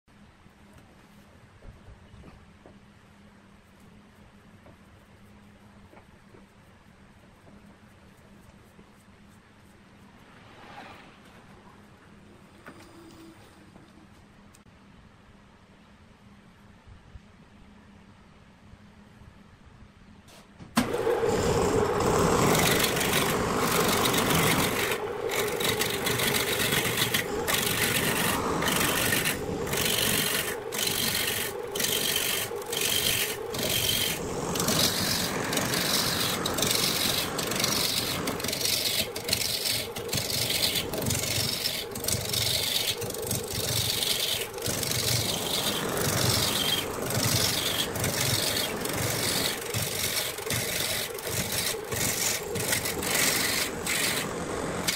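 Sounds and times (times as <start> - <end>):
gouge scraping wood: 20.8 - 54.9
wood lathe spinning: 20.8 - 54.9.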